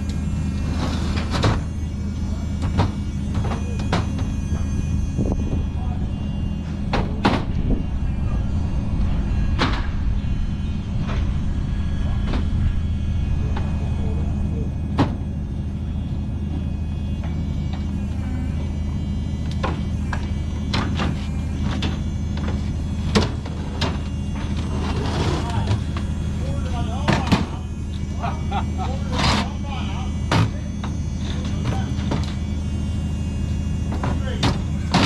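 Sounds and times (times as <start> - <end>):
engine humming: 0.0 - 35.0
sharp knocks and clanks: 2.6 - 4.7, 6.9 - 7.6, 15.0 - 15.2, 19.4 - 25.0, 30.3 - 32.4, 33.9 - 35.0.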